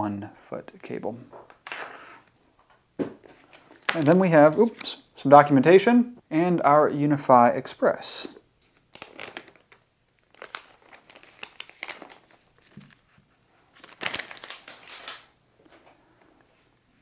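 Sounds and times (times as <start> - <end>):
plastic film crinkling: 3.3 - 5.0, 8.6 - 13.1, 13.7 - 15.4.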